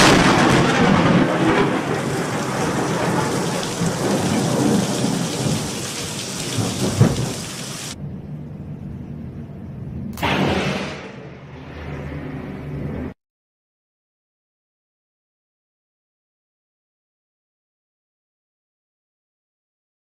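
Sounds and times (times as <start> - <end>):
heavy rain: 0.0 - 8.0
thunder crashing: 0.0 - 8.0.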